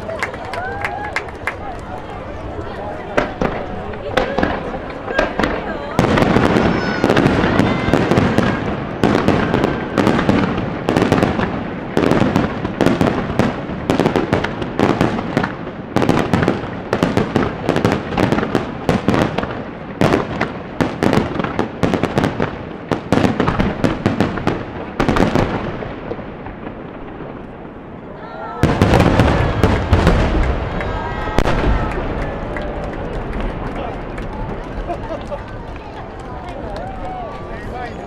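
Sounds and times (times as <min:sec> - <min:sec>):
fireworks bursting: 0:00.0 - 0:38.0
rumbling echo: 0:01.3 - 0:18.2, 0:22.3 - 0:37.5.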